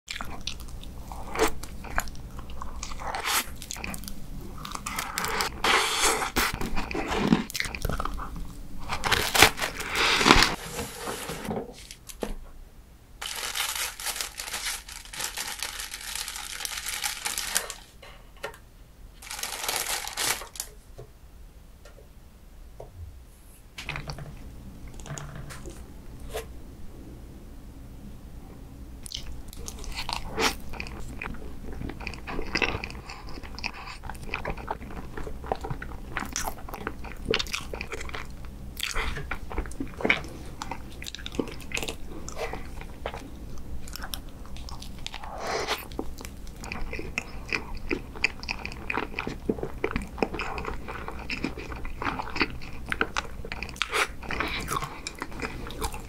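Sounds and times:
chewing and biting: 0:06.2 - 0:10.6, 0:29.0 - 0:56.0
rustling and scraping: 0:08.8 - 0:12.4.

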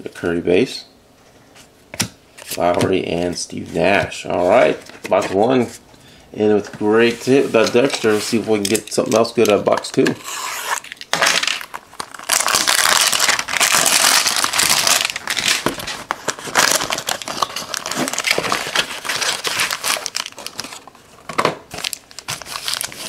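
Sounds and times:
foil packs crinkling: 0:10.8 - 0:23.0.

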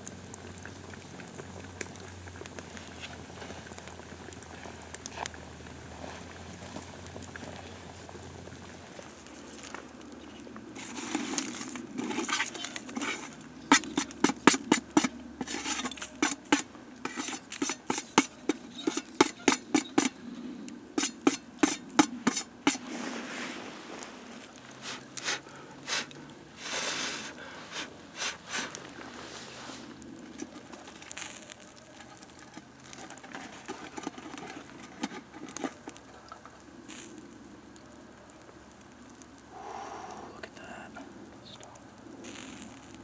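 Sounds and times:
brushing rush: 0:10.8 - 0:20.2, 0:21.0 - 0:30.0
scraping on metal lid: 0:10.8 - 0:20.2, 0:21.0 - 0:23.1
stick tapping metal lid: 0:11.5 - 0:20.2, 0:21.0 - 0:22.8.

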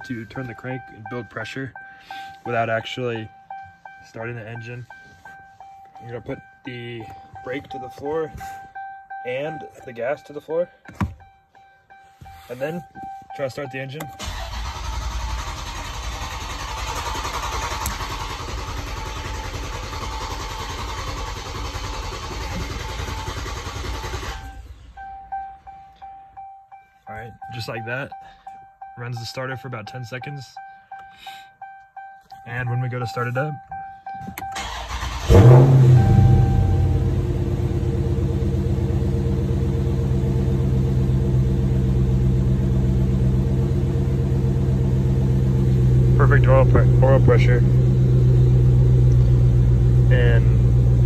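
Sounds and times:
car engine idling: 0:00.0 - 0:51.0
starter motor cranking engine: 0:14.0 - 0:24.7, 0:34.4 - 0:36.3.

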